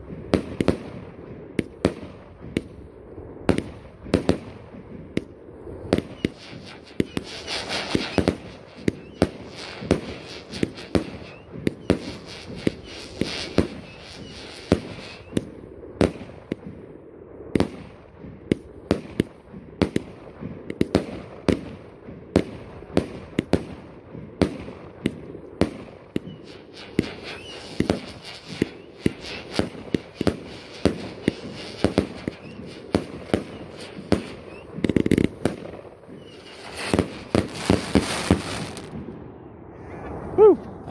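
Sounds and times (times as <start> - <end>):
firework shots bursting: 0.2 - 2.8, 3.4 - 16.8, 17.6 - 39.2
crackling hiss of bursting stars: 4.6 - 16.7, 24.9 - 39.0.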